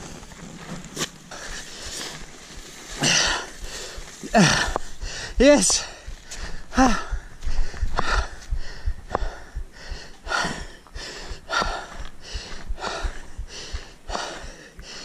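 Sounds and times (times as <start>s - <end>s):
man panting heavily: 1.3s - 15.0s
footsteps on gravel: 10.8s - 13.9s.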